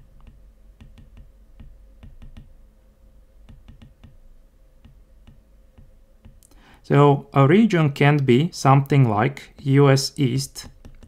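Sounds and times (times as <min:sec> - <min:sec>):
faint steady hum: 0:00.0 - 0:11.0
stylus tapping on drawing tablet: 0:00.2 - 0:02.6, 0:03.5 - 0:04.2, 0:04.8 - 0:06.4, 0:10.6 - 0:11.0.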